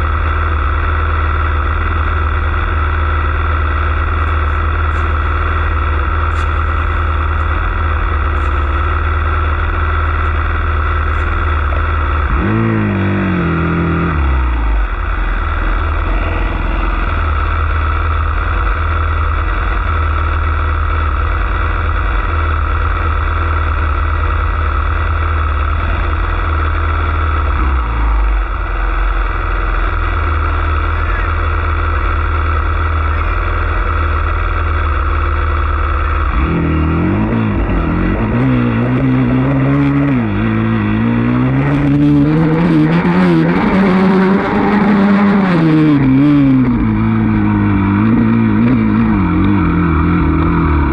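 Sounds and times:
dirt bike engine idling: 0.0s - 50.9s
dirt bike revving away: 7.2s - 14.9s, 36.0s - 50.9s.

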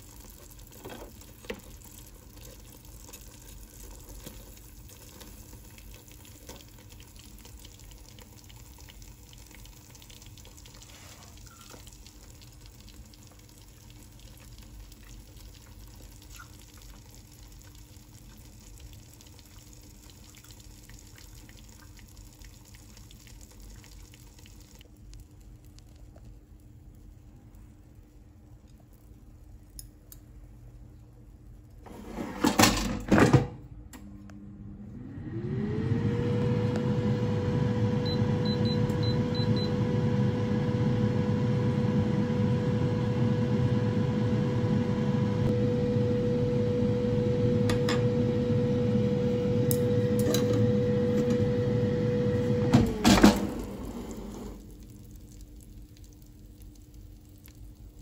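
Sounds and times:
air fryer fan whirring hum: 0.0s - 55.4s
air fryer basket clunks: 32.2s - 33.6s, 52.7s - 53.7s.

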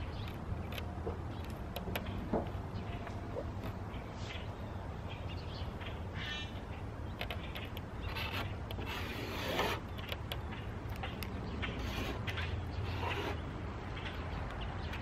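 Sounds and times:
marker squeaking and scratching: 7.2s - 14.1s.

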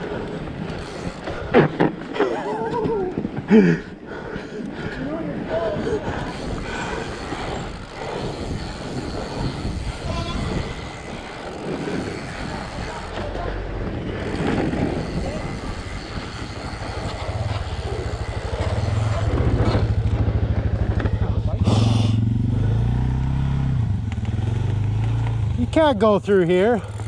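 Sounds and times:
pulsing atv engine drone: 0.0s - 1.8s, 2.4s - 27.0s
bike tyre and frame noise: 0.0s - 27.0s
wind on microphone: 4.7s - 22.0s.

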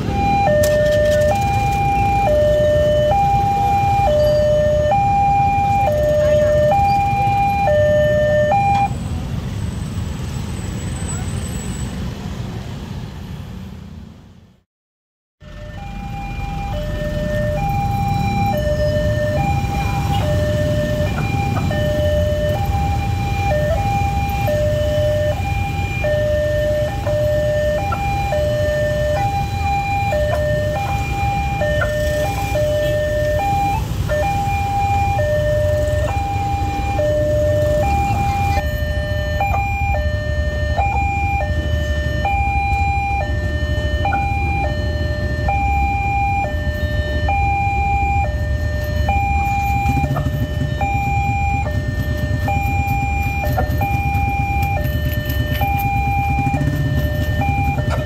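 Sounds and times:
level crossing two-tone alarm: 0.0s - 9.0s, 15.5s - 58.0s
idling motorcycle and car engines: 0.0s - 14.5s, 15.5s - 58.0s.

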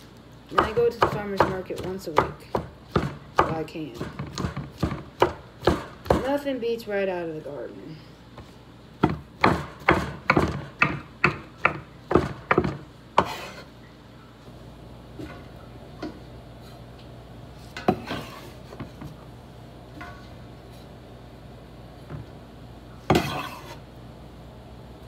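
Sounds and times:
knife chopping on wooden board: 0.5s - 6.3s, 9.0s - 13.6s, 23.1s - 23.8s
knife scraping on board: 13.2s - 13.7s, 17.7s - 18.8s, 23.1s - 23.8s.

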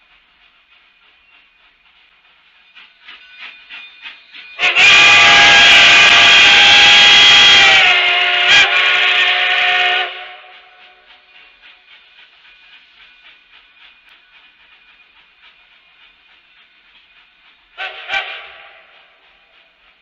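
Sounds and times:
steam locomotive exhaust chuffs: 0.0s - 20.0s
steam whistle blast: 4.6s - 10.7s, 17.8s - 19.2s.

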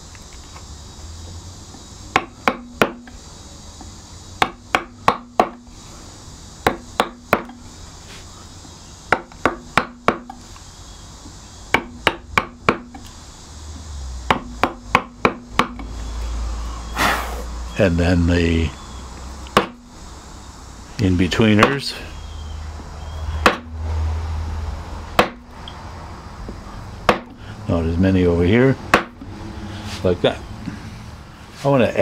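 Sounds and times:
mallet tapping gouge into wood: 2.1s - 3.1s, 4.4s - 5.6s, 6.6s - 7.6s, 9.1s - 10.4s, 11.7s - 13.0s, 14.3s - 15.9s, 19.5s - 19.8s, 23.4s - 23.7s, 25.2s - 25.4s, 27.1s - 27.4s, 28.9s - 29.2s.

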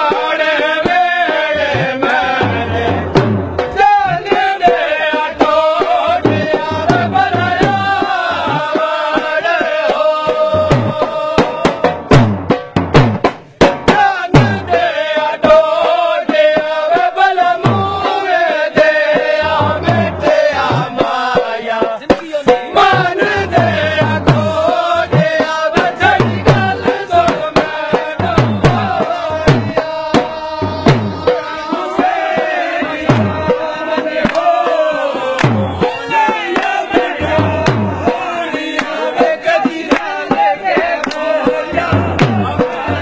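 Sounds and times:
drum strokes: 0.0s - 43.0s
sharp percussive clicks: 41.0s - 41.3s.

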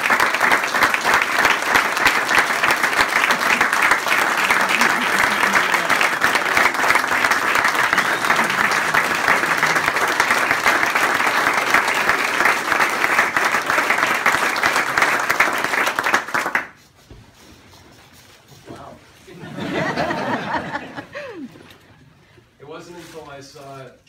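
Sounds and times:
audience applause: 0.0s - 16.8s, 19.6s - 21.4s.

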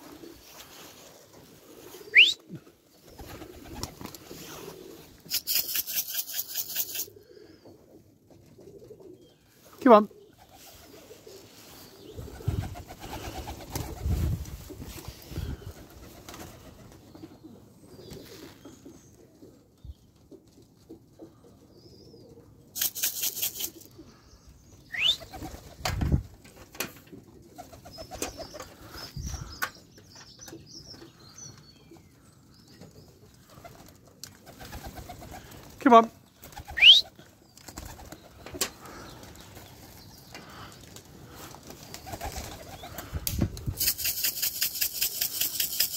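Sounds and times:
pigeons cooing: 0.0s - 19.8s, 21.0s - 25.8s, 27.2s - 29.8s, 32.9s - 35.8s, 36.4s - 45.9s
wings clattering: 5.2s - 7.1s, 22.8s - 23.9s, 40.9s - 45.9s.

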